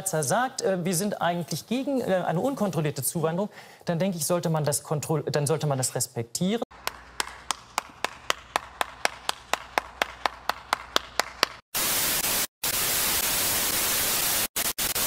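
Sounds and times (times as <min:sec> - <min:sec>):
person clapping slowly: 0:06.7 - 0:11.7
tv static hiss: 0:11.8 - 0:15.0.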